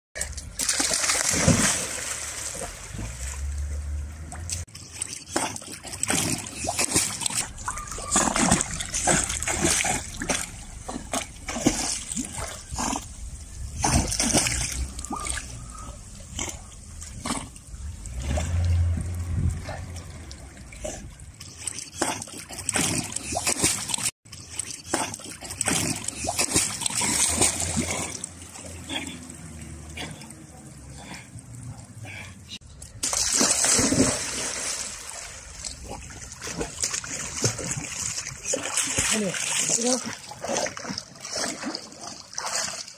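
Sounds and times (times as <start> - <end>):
dog splashing in pool: 0.2 - 13.0, 13.8 - 15.5, 33.0 - 42.9.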